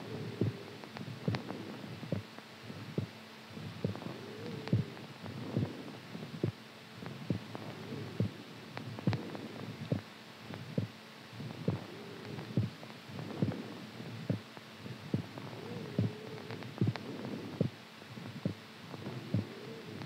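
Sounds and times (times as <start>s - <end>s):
faint wavering hum: 0.0s - 20.0s
heartbeat thumping: 0.4s - 13.6s, 14.2s - 19.6s.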